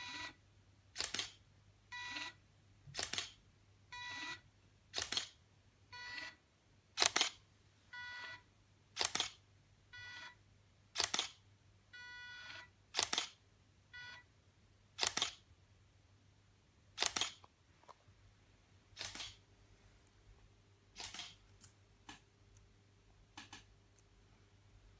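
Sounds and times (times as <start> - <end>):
camera shutter clicks: 1.0 - 1.4, 3.0 - 3.4, 5.0 - 5.4, 7.0 - 7.4, 9.0 - 9.4, 11.0 - 11.4, 13.0 - 13.4, 15.0 - 15.4, 17.0 - 17.4, 19.0 - 19.4, 21.0 - 21.4.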